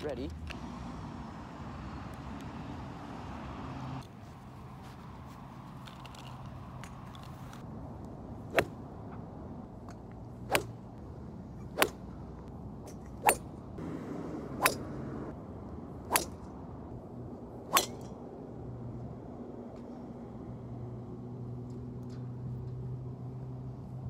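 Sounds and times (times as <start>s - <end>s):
golf clubs striking balls: 17.7s - 18.2s.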